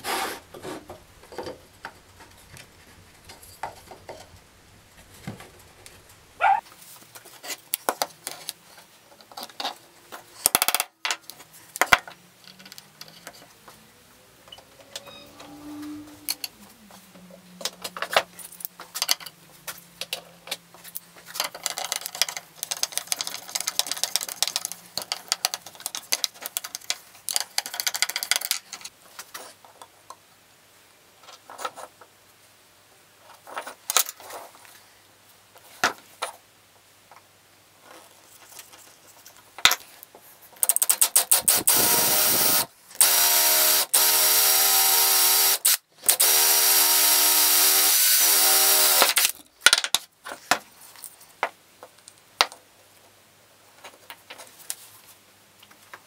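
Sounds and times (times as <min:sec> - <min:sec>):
tools and wood clicking and knocking: 0:00.5 - 0:04.5, 0:07.3 - 0:13.8, 0:17.6 - 0:19.4, 0:20.0 - 0:30.2, 0:40.6 - 0:43.2, 0:48.4 - 0:52.7
power drill boring into wood: 0:41.3 - 0:49.3.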